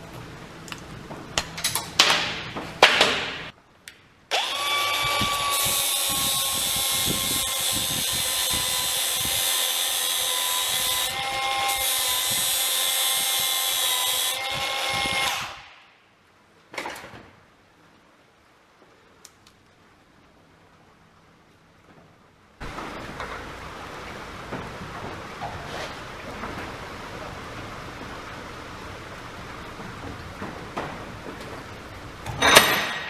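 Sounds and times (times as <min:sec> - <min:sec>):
angle grinder grinding steel: 0:04.4 - 0:15.6.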